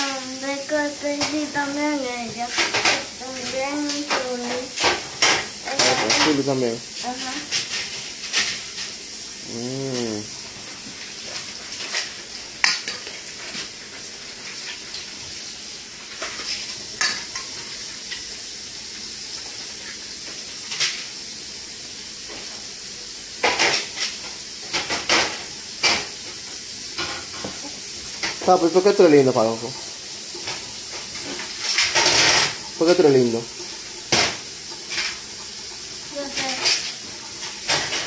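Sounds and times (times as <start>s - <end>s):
steady hiss: 0.0s - 38.0s
person humming: 9.4s - 10.4s.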